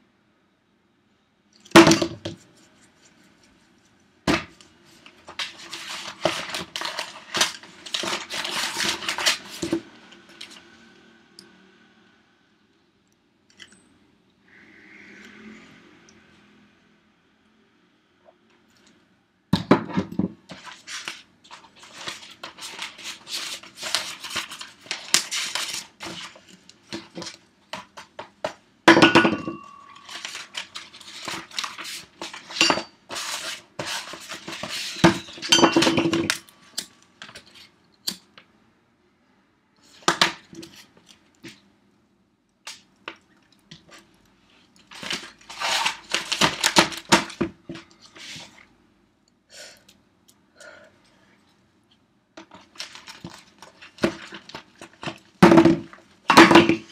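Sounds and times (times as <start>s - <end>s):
paper handling: 4.5s - 10.6s, 20.5s - 28.3s, 29.9s - 35.6s, 43.9s - 48.7s, 52.4s - 56.6s.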